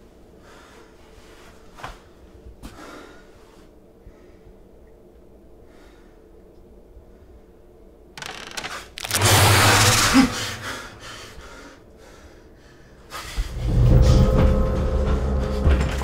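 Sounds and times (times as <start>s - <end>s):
sudden loud hiss: 8.2s - 11.5s.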